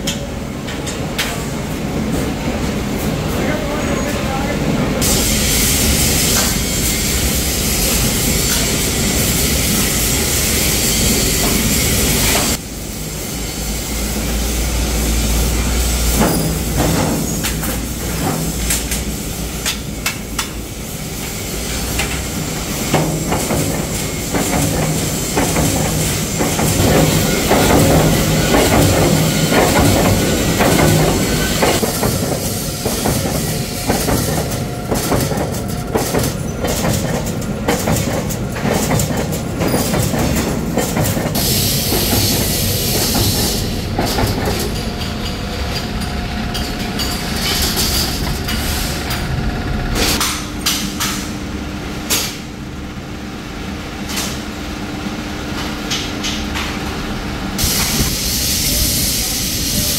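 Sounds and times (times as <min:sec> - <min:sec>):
machine humming: 0:03.5 - 0:50.6
loud hiss: 0:05.0 - 0:34.8, 0:41.3 - 0:44.2, 0:57.6 - 0:59.9
power press striking metal: 0:22.0 - 0:45.4.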